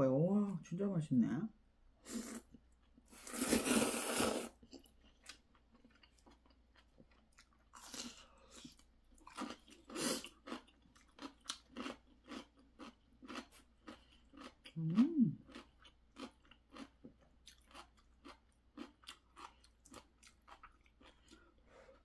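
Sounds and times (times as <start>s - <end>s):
noodles slurping: 3.1s - 4.9s
crunchy chewing: 3.3s - 14.8s, 15.4s - 21.6s.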